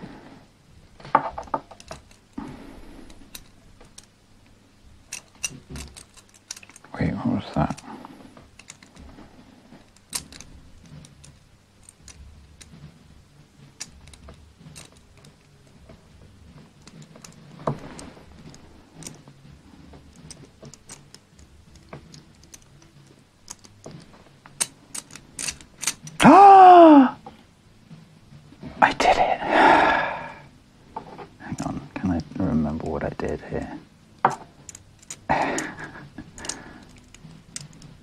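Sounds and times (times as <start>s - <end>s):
metal puzzle pieces clicking: 1.3s - 2.4s, 3.0s - 4.1s, 5.0s - 7.9s, 8.5s - 9.1s, 9.8s - 12.8s, 13.7s - 15.8s, 16.6s - 19.3s, 20.0s - 26.2s, 34.2s - 38.0s.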